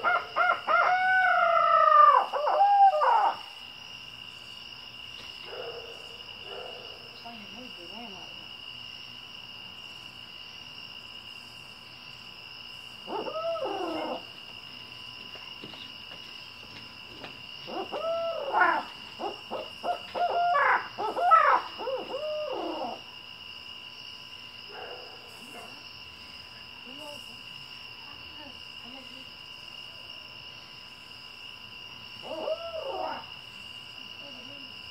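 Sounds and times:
owl hooting: 0.0s - 3.5s, 13.1s - 14.3s, 17.6s - 23.1s, 32.2s - 33.3s
night insects shrilling: 0.0s - 34.9s.

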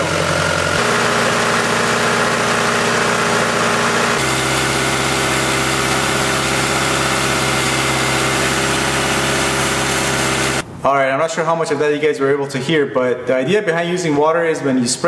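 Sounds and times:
car engine idling: 0.0s - 10.6s.

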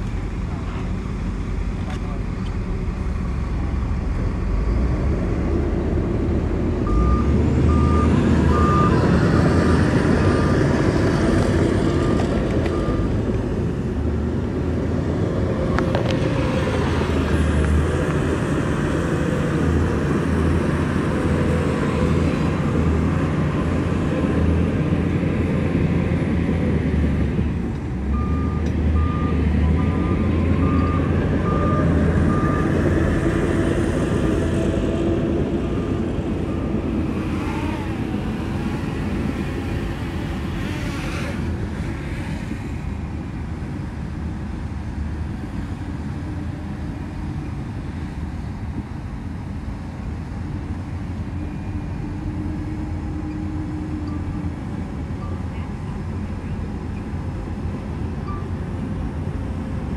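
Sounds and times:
heavy diesel machinery running: 0.0s - 59.9s
reversing alarm beeping: 6.8s - 9.6s, 28.1s - 32.8s.

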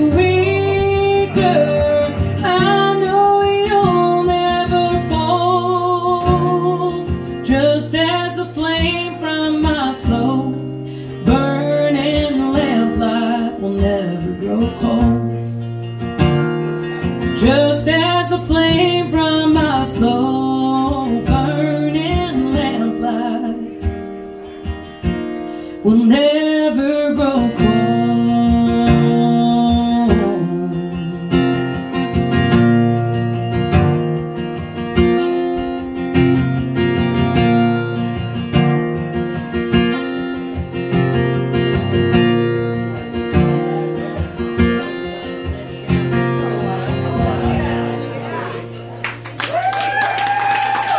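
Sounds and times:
woman singing a slow song: 0.0s - 15.5s, 17.2s - 24.1s, 25.7s - 31.8s
acoustic guitar: 0.0s - 50.9s.

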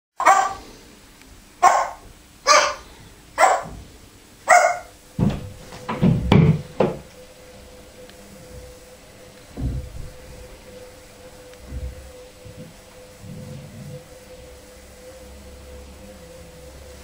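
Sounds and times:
parrot mimicking dog bark: 0.2s - 0.7s, 1.6s - 2.8s, 3.4s - 3.7s, 4.5s - 5.0s.

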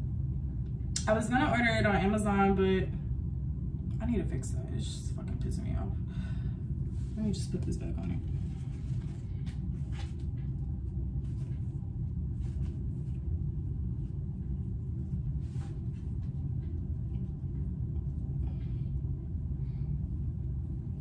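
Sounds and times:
low rumble: 0.0s - 21.0s
fabric rustling: 6.9s - 17.4s.

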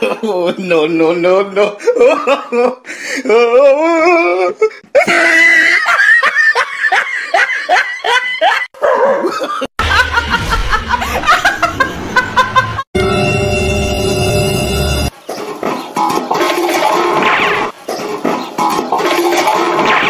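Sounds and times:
person laughing: 1.6s - 12.9s.

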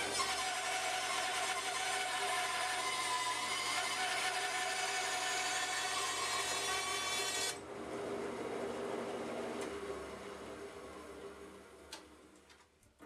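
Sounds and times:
bandsaw rasping through log: 0.0s - 7.6s.

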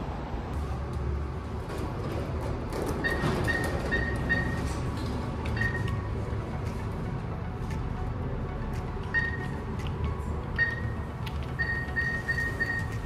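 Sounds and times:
kiosk high beeps: 3.0s - 4.8s, 5.5s - 6.2s, 9.0s - 9.7s, 10.5s - 13.0s.

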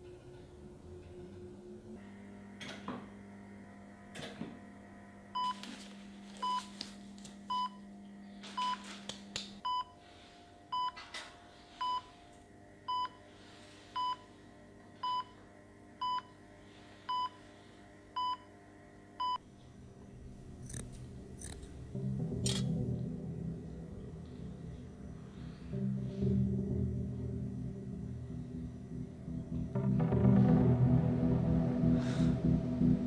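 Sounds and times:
music: 0.0s - 33.0s
heart monitor beeping: 5.4s - 5.6s, 6.4s - 6.7s, 7.5s - 7.8s, 8.5s - 8.9s, 9.6s - 10.0s, 10.7s - 11.0s, 11.8s - 12.1s, 12.9s - 13.3s, 14.0s - 14.3s, 15.0s - 15.4s.

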